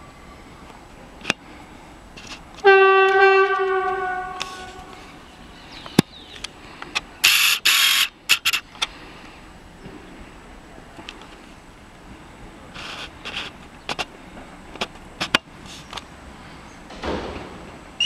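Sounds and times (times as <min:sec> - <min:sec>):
train horn blast: 0:02.6 - 0:05.1
loud bursts of hiss: 0:07.2 - 0:08.6.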